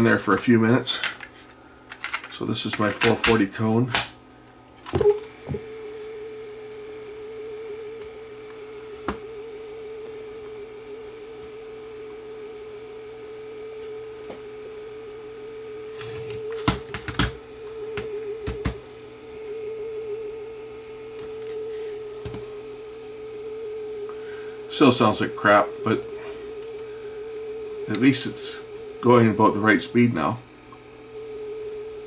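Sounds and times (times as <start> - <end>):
wavering test tone from cassette: 0.0 - 32.0.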